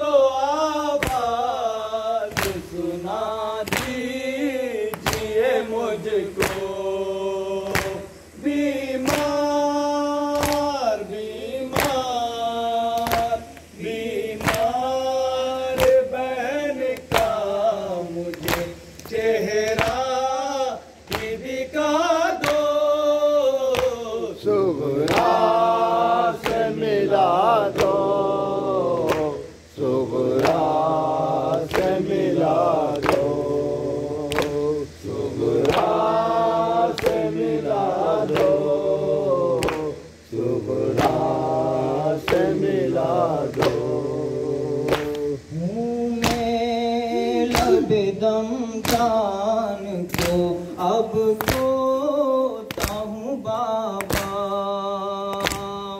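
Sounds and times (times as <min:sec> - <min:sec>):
men chanting a lament: 0:00.0 - 0:55.9
hands slapping chests: 0:01.0 - 0:01.4, 0:02.3 - 0:02.8, 0:03.6 - 0:04.0, 0:04.9 - 0:05.4, 0:06.4 - 0:06.7, 0:07.6 - 0:08.2, 0:09.0 - 0:09.4, 0:10.3 - 0:10.8, 0:11.7 - 0:12.0, 0:13.0 - 0:13.7, 0:14.4 - 0:14.7, 0:15.8 - 0:16.1, 0:18.3 - 0:20.1, 0:21.1 - 0:21.5, 0:22.4 - 0:22.7, 0:25.0 - 0:25.6, 0:26.4 - 0:26.8, 0:27.7 - 0:28.0, 0:29.0 - 0:29.4, 0:30.3 - 0:30.9, 0:31.5 - 0:32.1, 0:32.8 - 0:33.4, 0:34.3 - 0:34.6, 0:35.6 - 0:36.2, 0:36.9 - 0:37.5, 0:38.2 - 0:38.7, 0:39.6 - 0:39.9, 0:40.9 - 0:41.3, 0:43.5 - 0:44.0, 0:44.9 - 0:45.3, 0:46.2 - 0:46.5, 0:47.4 - 0:47.9, 0:48.8 - 0:49.2, 0:50.1 - 0:50.5, 0:51.4 - 0:51.8, 0:52.7 - 0:53.1, 0:54.0 - 0:54.4, 0:55.3 - 0:55.8.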